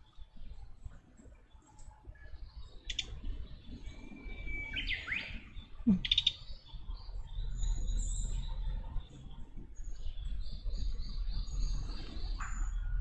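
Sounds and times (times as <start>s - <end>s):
songbird chattering calls: 2.8s - 3.2s, 4.7s - 6.5s.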